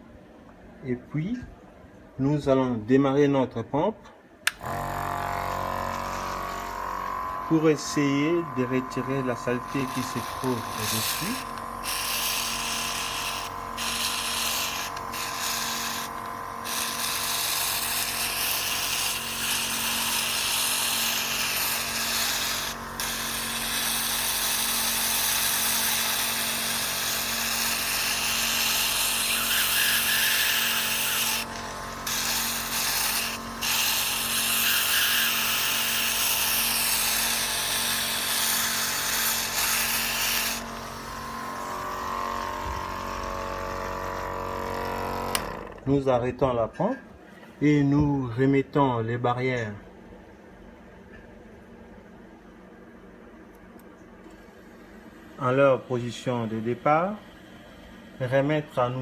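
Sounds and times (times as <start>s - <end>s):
low steady pump hum: 4.1s - 29.2s, 49.7s - 59.0s.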